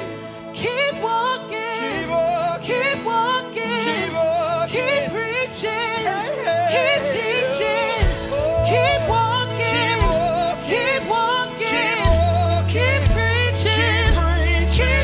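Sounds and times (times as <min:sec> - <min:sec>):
person singing: 0:00.0 - 0:15.0
sustained instrumental chords: 0:05.2 - 0:15.0
low bass notes: 0:08.0 - 0:11.0, 0:12.0 - 0:15.0.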